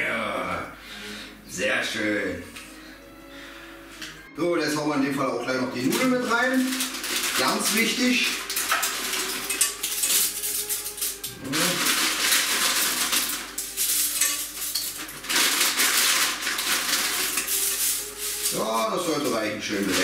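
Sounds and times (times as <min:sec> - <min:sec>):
dry pasta rattling: 0:05.8 - 0:20.0.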